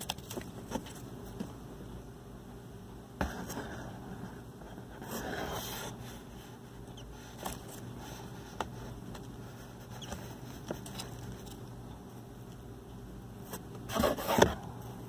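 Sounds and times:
rustling scrape in cardboard box: 13.9s - 14.6s.

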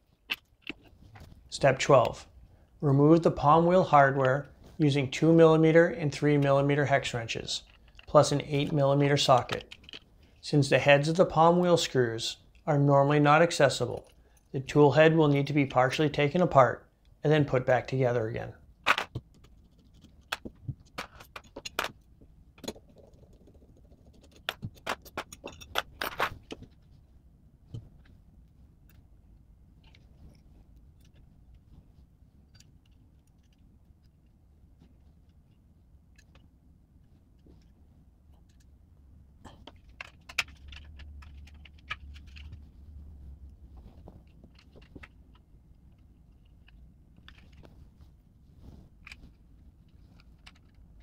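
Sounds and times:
plastic parts clicking and rattling: 7.6s - 10.1s, 18.8s - 26.8s, 39.5s - 42.8s, 43.8s - 47.8s, 49.0s - 51.0s.

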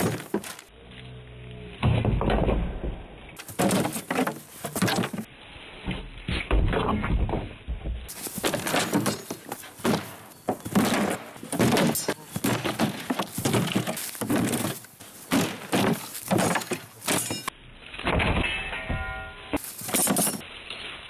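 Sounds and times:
swords striking wooden shields: 1.8s - 5.3s, 8.1s - 20.4s.

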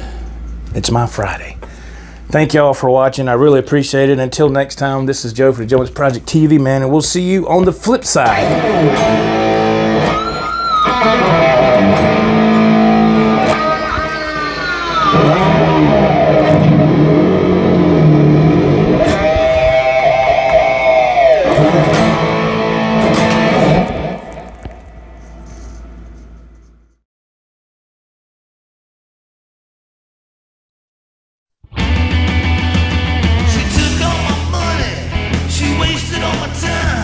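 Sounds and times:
electric guitar lead with bends: 8.2s - 25.8s, 31.7s - 37.0s.

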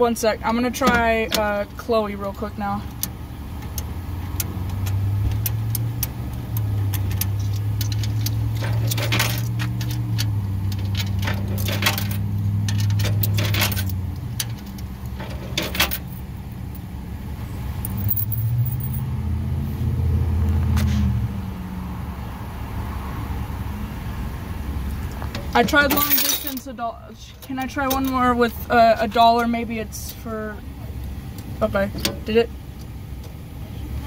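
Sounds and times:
coins clinking: 15.5s - 16.2s, 17.8s - 19.0s, 25.9s - 26.7s.

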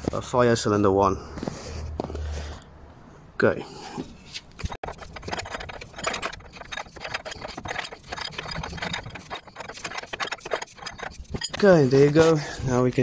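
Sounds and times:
wrench clicking and rattling: 4.6s - 12.2s.

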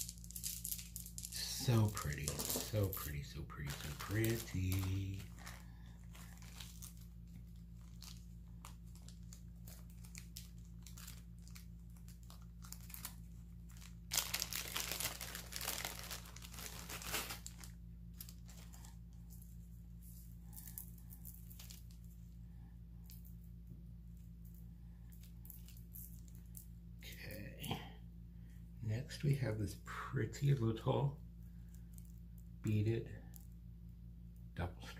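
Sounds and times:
packaging tearing: 0.0s - 7.0s, 7.8s - 18.8s
packaging crinkling and rustling: 0.0s - 19.1s, 20.5s - 22.0s.

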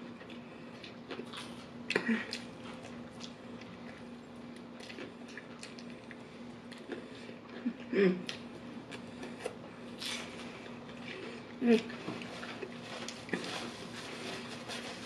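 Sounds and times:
person humming: 7.6s - 8.3s.

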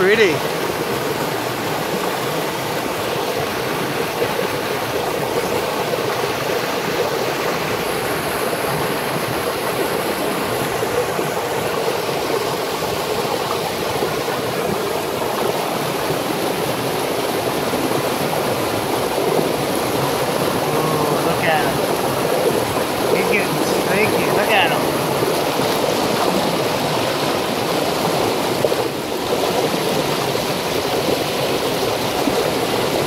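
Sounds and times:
river water rushing over rocks: 0.0s - 33.0s.

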